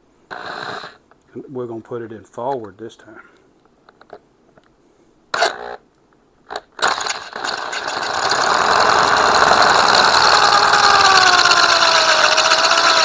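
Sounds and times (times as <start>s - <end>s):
electric drill running: 6.8s - 13.0s.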